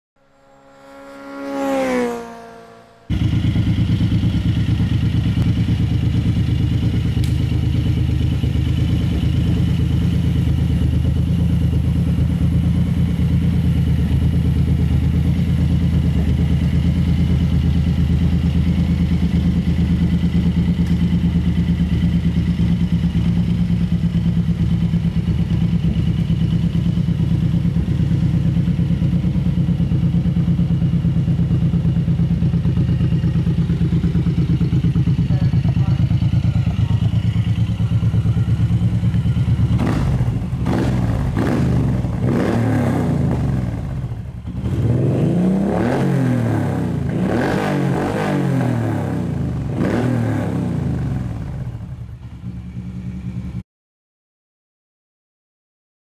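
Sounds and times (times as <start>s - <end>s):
tone sliding down in pitch: 0.2s - 3.1s
motorcycle engine idling: 0.2s - 45.7s, 46.7s - 53.6s.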